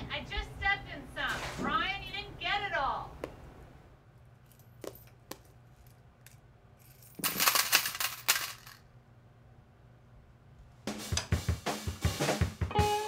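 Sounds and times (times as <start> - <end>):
rattling jingling clatter: 6.8 - 8.8.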